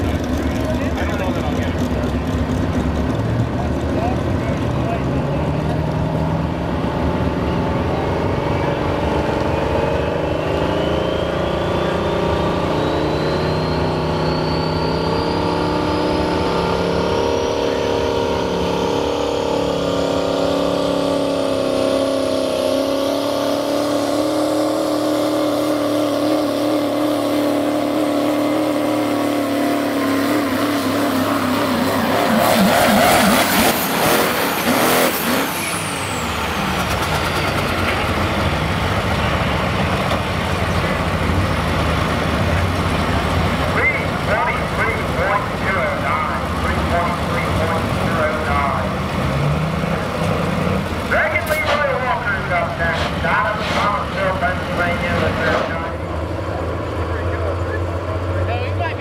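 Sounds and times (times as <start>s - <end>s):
diesel truck engine running: 0.0s - 59.0s
second diesel truck nearby: 0.0s - 59.0s
whistle rising in pitch: 10.1s - 16.4s.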